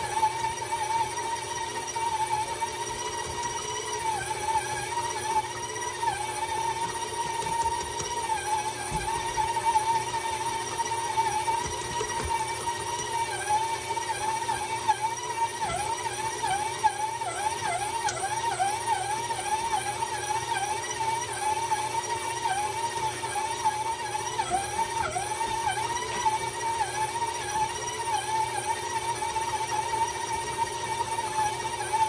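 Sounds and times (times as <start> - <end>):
stand mixer motor whining: 0.0 - 32.0.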